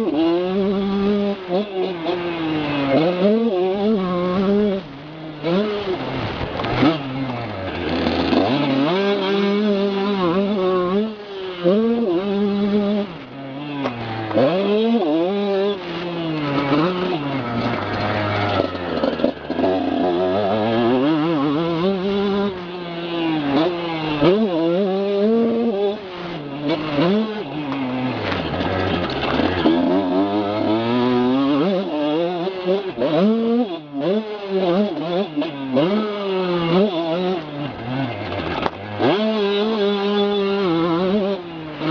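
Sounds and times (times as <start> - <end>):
motorbike engine revving: 0.0 - 41.9.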